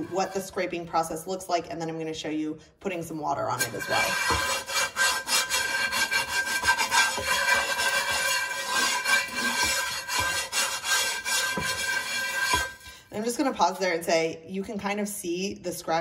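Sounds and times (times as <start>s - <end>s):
chainmail scrubber scraping skillet: 3.5s - 13.1s.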